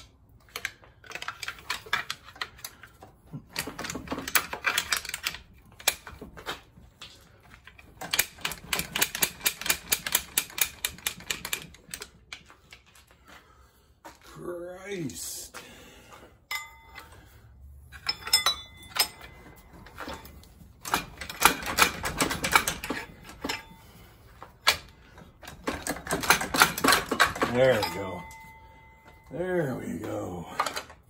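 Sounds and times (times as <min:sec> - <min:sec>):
socket ratchet clicking: 0:08.0 - 0:12.1.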